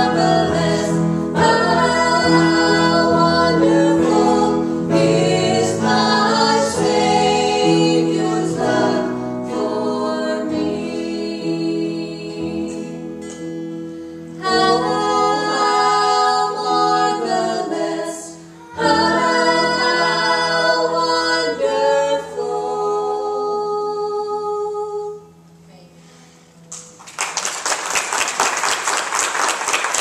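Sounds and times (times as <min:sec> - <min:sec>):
group singing a hymn: 0:00.0 - 0:13.2, 0:14.3 - 0:25.3
acoustic guitar: 0:00.0 - 0:27.1
applause: 0:26.7 - 0:30.0.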